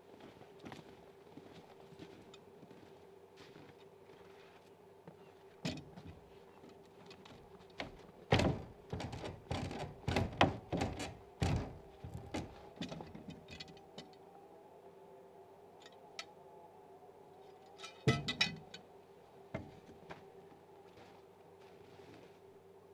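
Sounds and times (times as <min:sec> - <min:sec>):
footsteps crunching on snow: 0:00.0 - 0:05.6, 0:20.0 - 0:22.5
faint hum: 0:00.0 - 0:22.9.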